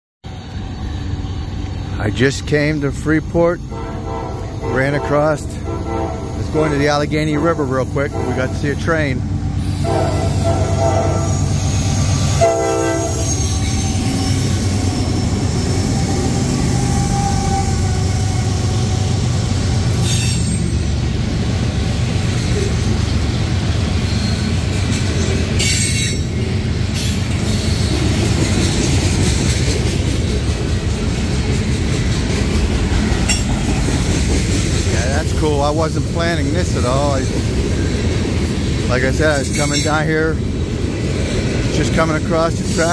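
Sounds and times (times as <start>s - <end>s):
train wheels rumbling on rail: 0.2s - 42.9s
high wheel squeals: 0.3s - 19.4s, 23.9s - 28.6s, 41.8s - 42.9s
locomotive horn: 2.8s - 14.8s.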